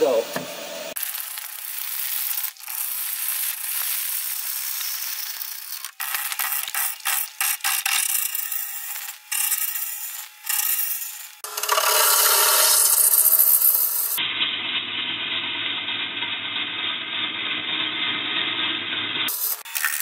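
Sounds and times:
lathe gouge rasping on wood: 0.3s - 14.2s.

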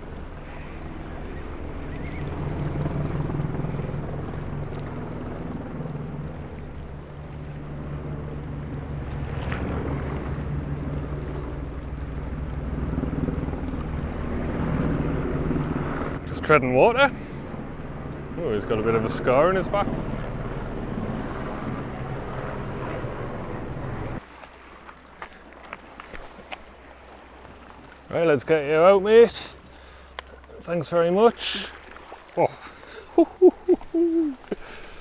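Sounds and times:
wind rumbling on microphone: 0.0s - 24.2s.

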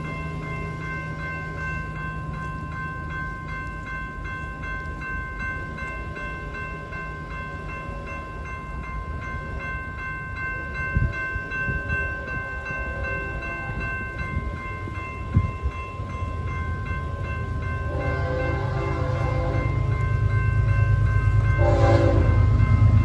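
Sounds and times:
freight train rumbling: 0.0s - 23.0s
railroad crossing bell ringing: 0.0s - 23.0s
locomotive horn: 17.9s - 19.9s, 21.4s - 22.6s.

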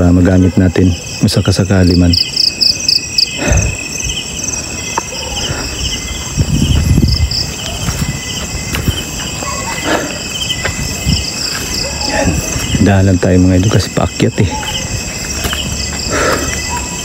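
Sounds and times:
night insects chirping: 0.0s - 17.0s
footsteps on a path: 4.6s - 17.0s.

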